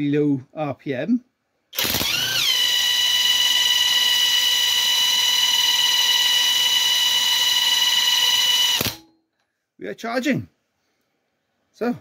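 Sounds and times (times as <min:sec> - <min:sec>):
impact wrench whining: 0:01.7 - 0:09.1.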